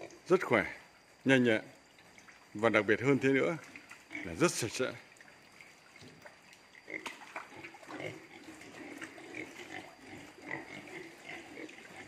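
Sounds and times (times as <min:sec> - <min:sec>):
pigs grunting softly: 0:06.0 - 0:12.0.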